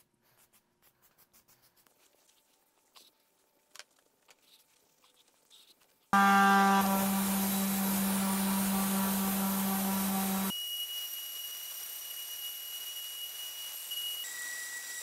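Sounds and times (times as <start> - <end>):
orbital sander humming: 6.2 - 10.5
sanding pad hissing on metal: 6.2 - 10.5.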